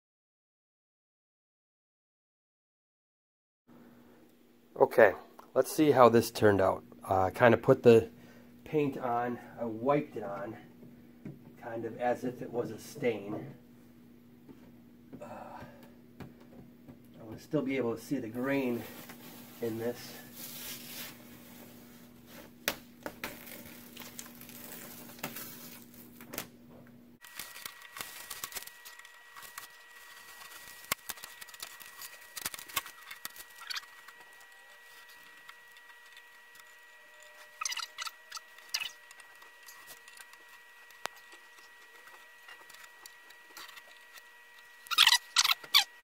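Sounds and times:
plastic film crinkling: 18.7s - 26.5s, 27.2s - 45.9s.

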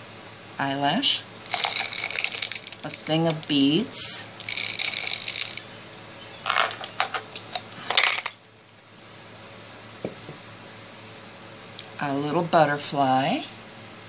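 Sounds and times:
beads and glass jar clinking: 1.4s - 5.7s, 6.3s - 7.2s, 7.9s - 8.4s.

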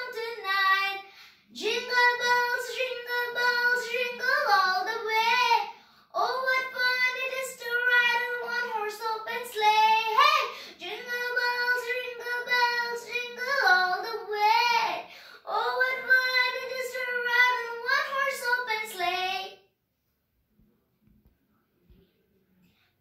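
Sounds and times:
girl singing: 0.0s - 19.7s.

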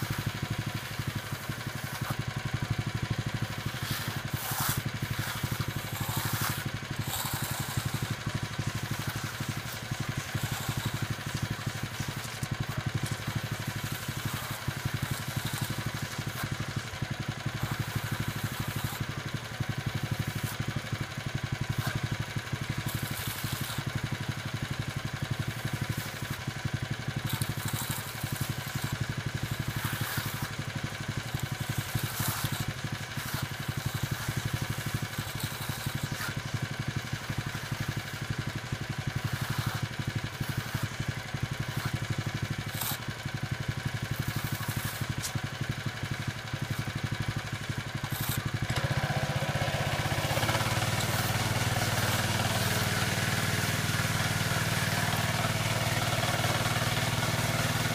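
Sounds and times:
power trowel engine running: 0.0s - 57.9s.

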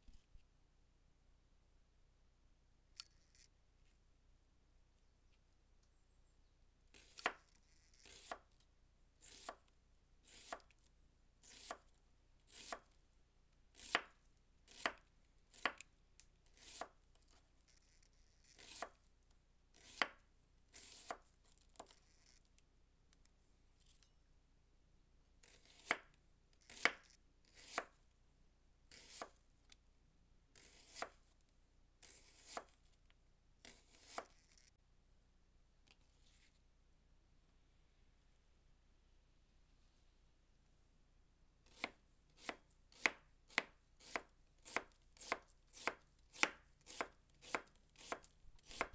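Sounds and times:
knife slicing onion on board: 7.0s - 8.4s, 9.2s - 9.6s, 10.3s - 10.7s, 11.4s - 11.8s, 13.8s - 14.1s, 14.7s - 15.8s, 16.6s - 17.0s, 18.5s - 19.0s, 19.7s - 21.2s, 25.4s - 27.9s, 28.9s - 29.4s, 30.6s - 31.2s, 32.0s - 32.8s, 33.6s - 34.5s, 41.7s - 48.9s.

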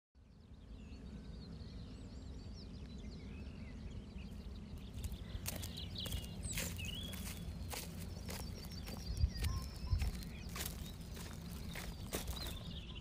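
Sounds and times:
small birds chirping: 0.2s - 13.0s
steady low rumble: 0.9s - 13.0s
footsteps crunching on stubble: 4.8s - 13.0s.

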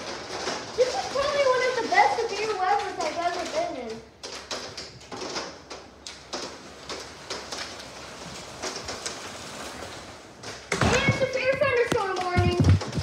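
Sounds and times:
hail hissing on a house: 0.0s - 13.0s
hailstones knocking: 0.0s - 13.0s.

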